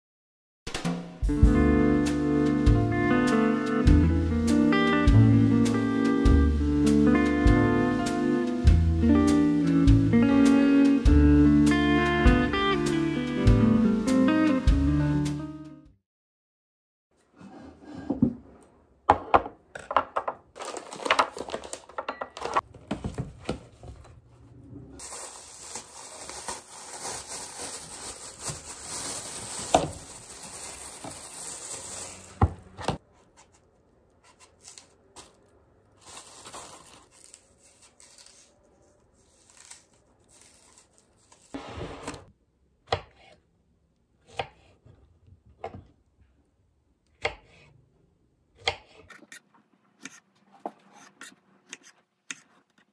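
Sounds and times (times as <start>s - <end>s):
rustling: 25.0s - 41.8s.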